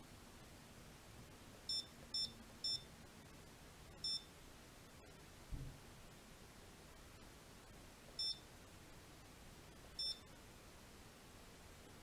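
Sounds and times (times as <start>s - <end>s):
short high beeps: 4.0s - 4.3s, 8.2s - 8.4s, 10.0s - 10.2s.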